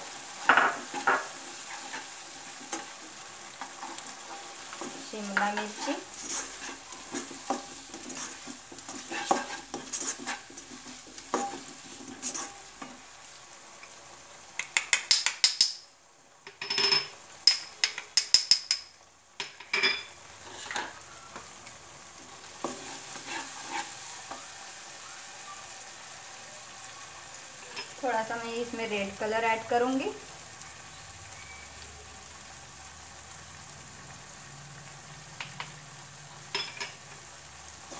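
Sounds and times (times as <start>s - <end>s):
spatula stirring and scraping: 0.0s - 13.4s, 20.2s - 24.7s
vegetables sizzling: 0.0s - 37.9s
sharp taps against pan: 14.6s - 15.8s.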